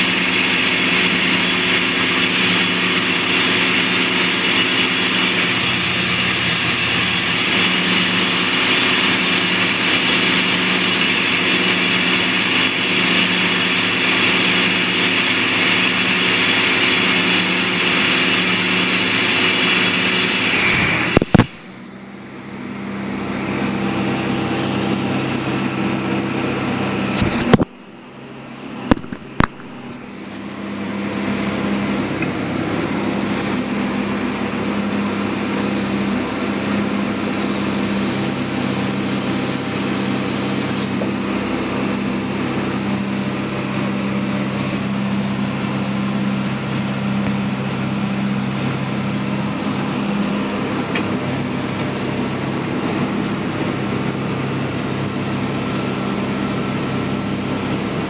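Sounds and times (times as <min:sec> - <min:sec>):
drill rig drilling into rock: 0:00.0 - 0:22.0, 0:27.0 - 0:28.0, 0:28.8 - 0:58.0
machine hum: 0:00.0 - 0:58.0.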